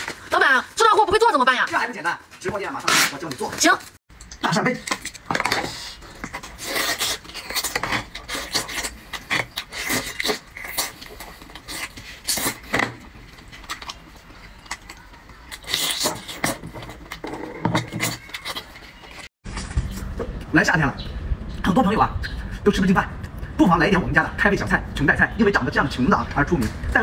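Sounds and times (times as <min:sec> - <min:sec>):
chewing: 0:06.0 - 0:19.3.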